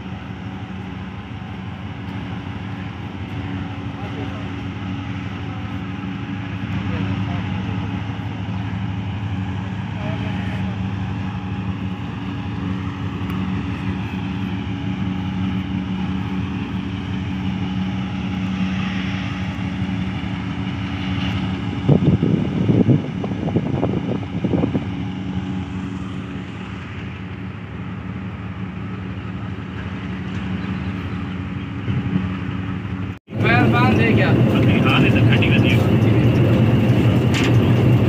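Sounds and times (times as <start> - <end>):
locomotive engine droning: 0.0 - 38.0
irregular rumbling and knocking: 29.5 - 38.0.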